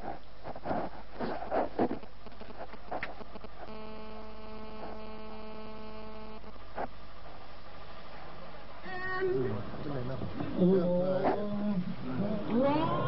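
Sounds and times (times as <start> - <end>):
electrical hum: 0.0 - 13.0
steady buzzing tone: 2.0 - 8.0.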